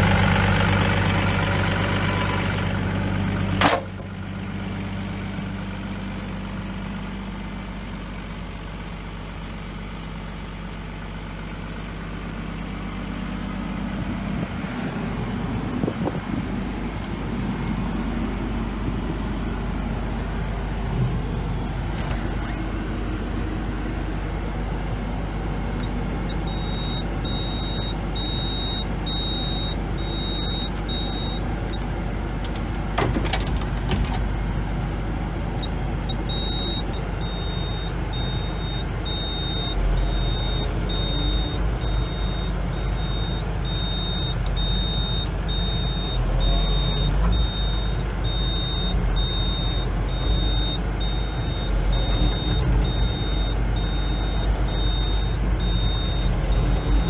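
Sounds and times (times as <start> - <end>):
excavator diesel engine running: 0.0 - 57.0
hydraulics working: 13.7 - 57.0
high-pitched warning beep: 26.3 - 31.4, 36.3 - 57.0.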